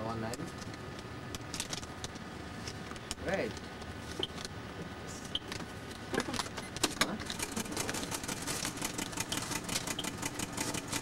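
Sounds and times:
rapid clicking and clattering: 0:06.3 - 0:11.0.

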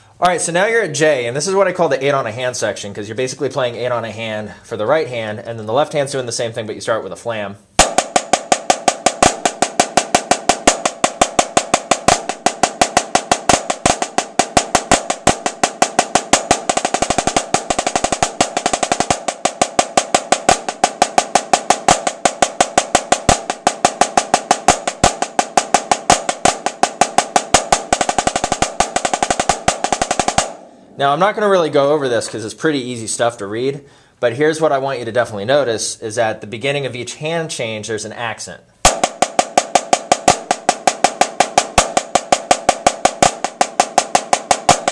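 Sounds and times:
snare drum strokes: 0:07.8 - 0:31.2, 0:38.8 - 0:44.9.

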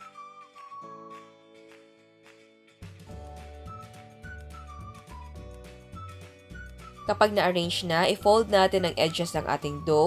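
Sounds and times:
background music with beat: 0:00.0 - 0:09.8.

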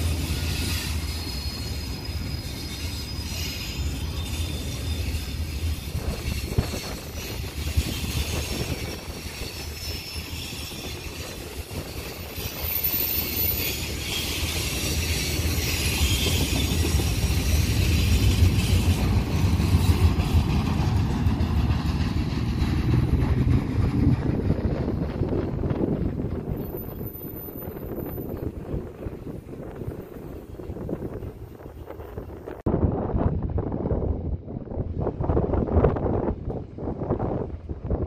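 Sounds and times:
high wheel squeals: 0:00.0 - 0:20.6
steel wheels rumbling on rails: 0:00.0 - 0:38.0.

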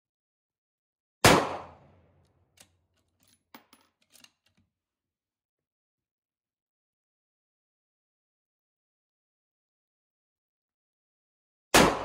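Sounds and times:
rifle shot: 0:01.2 - 0:02.0, 0:11.8 - 0:12.0.

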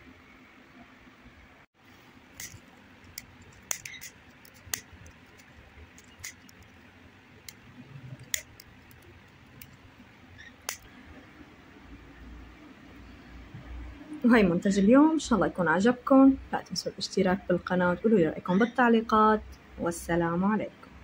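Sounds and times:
small sharp clicks and taps: 0:02.4 - 0:06.8, 0:07.4 - 0:09.8, 0:10.6 - 0:10.9.

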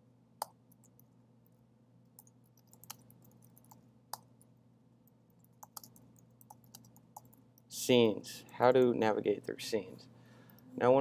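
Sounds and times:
keyboard typing: 0:02.2 - 0:04.3, 0:05.4 - 0:07.7.

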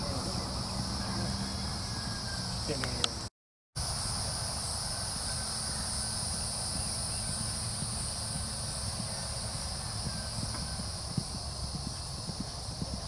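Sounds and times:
high-pitched insect chorus: 0:00.0 - 0:13.0
soft irregular thuds: 0:10.0 - 0:13.0.

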